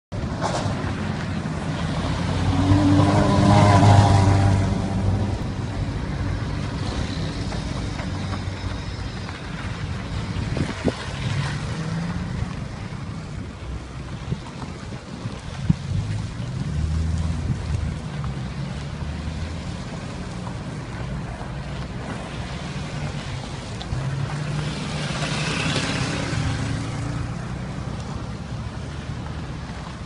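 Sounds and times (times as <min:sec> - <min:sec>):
cars driving past: 0:00.2 - 0:30.0.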